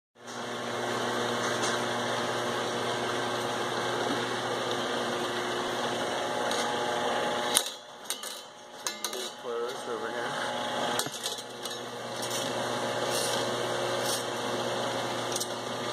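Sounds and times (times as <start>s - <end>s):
turntable and conveyor motor humming: 0.2s - 15.9s.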